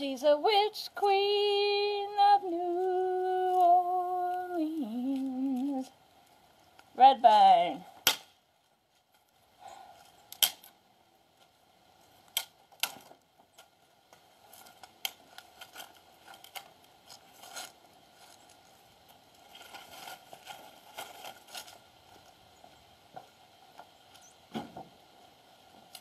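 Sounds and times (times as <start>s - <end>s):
wood rustling: 0.1s - 26.0s
axe chopping wood: 8.0s - 8.3s.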